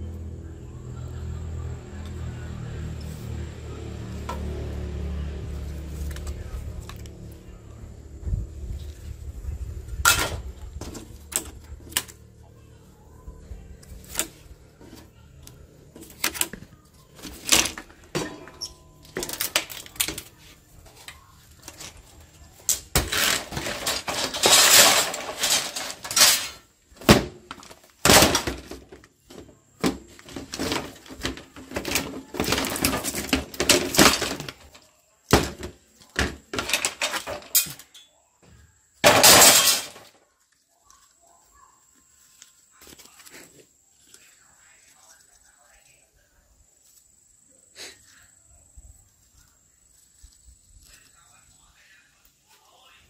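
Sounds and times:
crunching and scraping: 0:01.9 - 0:53.0
plastic cracking and clicking: 0:19.1 - 0:20.3.

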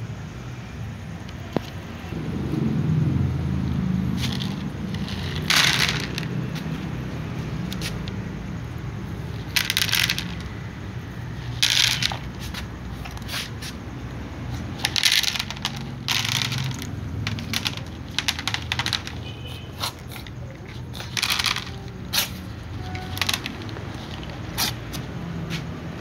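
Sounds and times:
pellets clattering on plastic tray: 0:04.2 - 0:06.8, 0:09.3 - 0:10.6, 0:11.4 - 0:13.8, 0:14.6 - 0:25.0.

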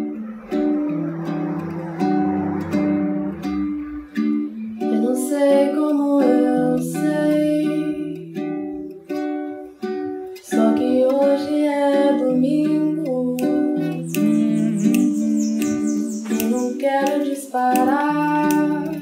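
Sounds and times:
plucked string instrument chords: 0:00.0 - 0:19.0
woman singing: 0:04.8 - 0:08.9, 0:10.4 - 0:19.0.

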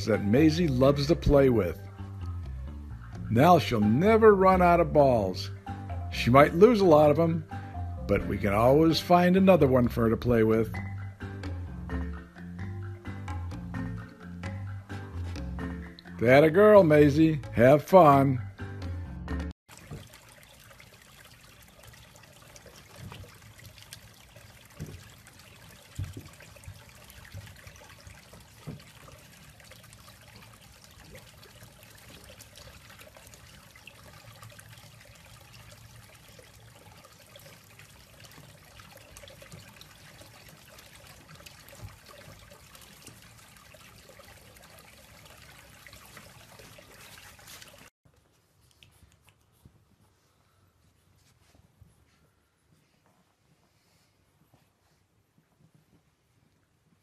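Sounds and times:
steady water hiss: 0:19.7 - 0:47.9.

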